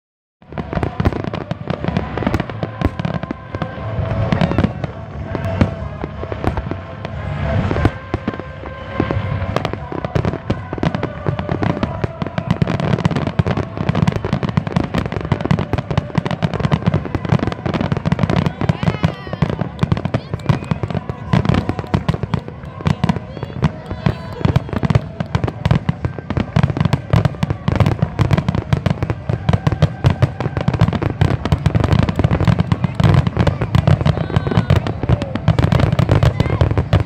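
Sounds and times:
fireworks bursting and crackling: 0.4 - 37.0.

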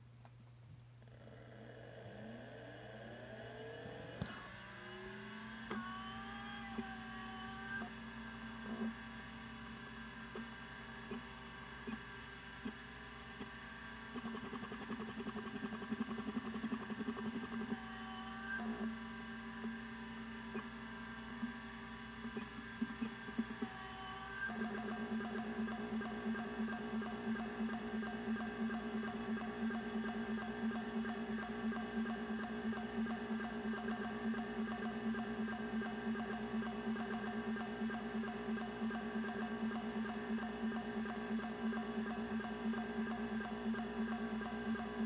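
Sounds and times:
hard disk spinning whine: 0.9 - 45.0
disk heads ticking: 24.5 - 45.0.

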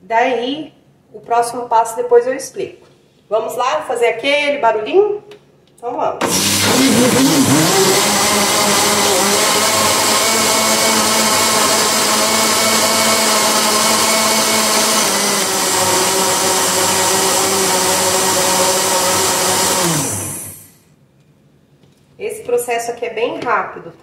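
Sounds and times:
blender motor running: 6.2 - 20.8.

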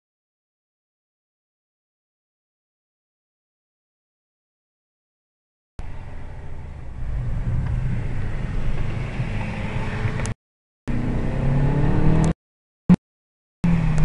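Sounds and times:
car engine accelerating: 5.8 - 12.4, 13.6 - 14.0
road noise: 5.8 - 13.0, 13.6 - 14.0.

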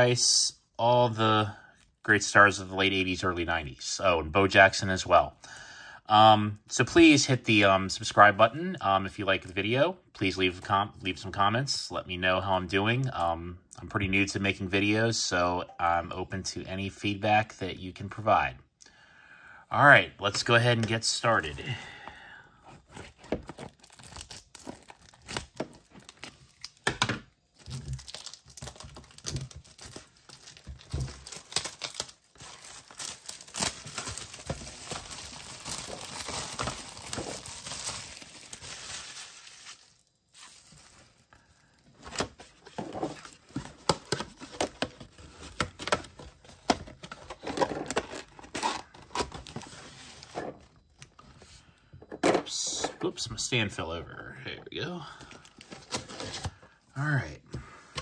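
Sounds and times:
plastic wrap tearing and crinkling: 22.9 - 41.4.

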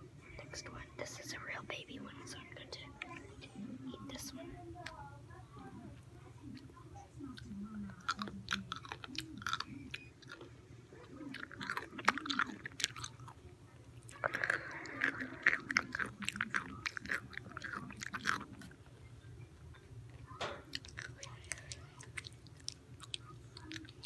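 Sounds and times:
pickle crunching: 7.3 - 18.9, 19.7 - 24.0.

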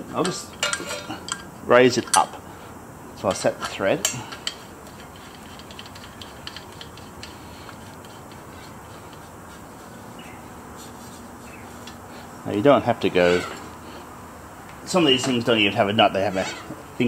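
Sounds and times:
light metallic clicks and scrapes: 0.1 - 2.4, 3.2 - 12.0.

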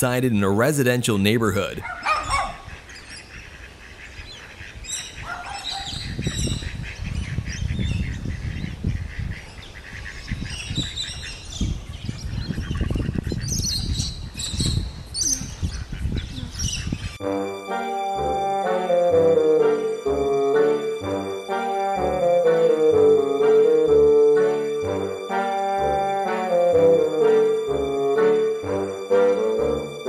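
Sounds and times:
bird calls: 1.8 - 17.1.

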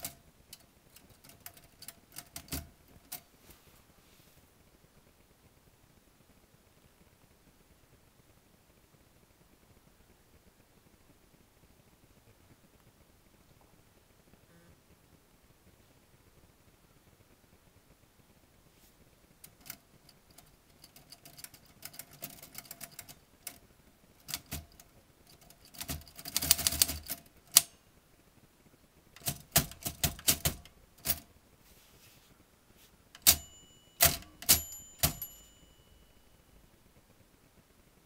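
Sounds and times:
typewriter keys clacking: 0.0 - 3.2, 19.4 - 23.6, 24.2 - 27.7, 29.2 - 31.3, 33.2 - 35.4
typewriter bell ringing: 33.2 - 36.4.

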